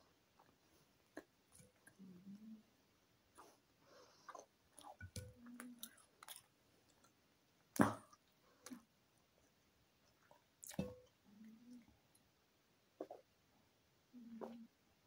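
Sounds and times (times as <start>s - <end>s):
mouth chewing food: 3.3s - 7.2s, 8.0s - 12.2s.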